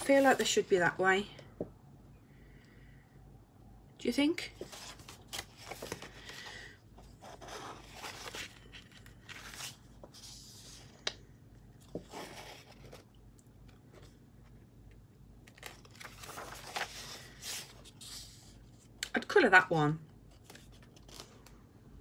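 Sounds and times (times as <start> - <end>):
paper pages rustling: 4.6 - 11.1, 15.4 - 19.0, 20.3 - 21.5.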